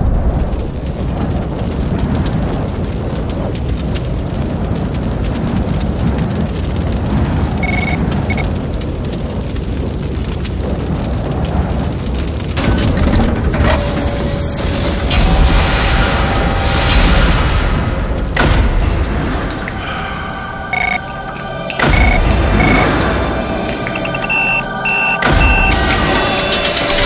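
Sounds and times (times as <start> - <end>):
hissing noise: 14.7 - 27.0
loud low rumble: 15.1 - 27.0.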